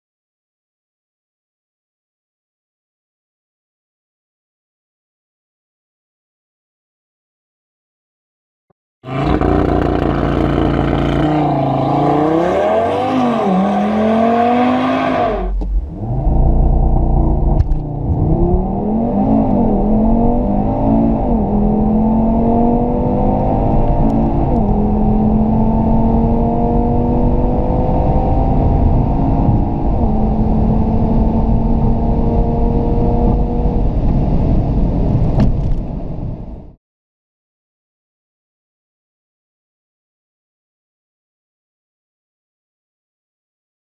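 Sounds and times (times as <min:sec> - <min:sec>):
car engine at full throttle: 0:09.0 - 0:36.4.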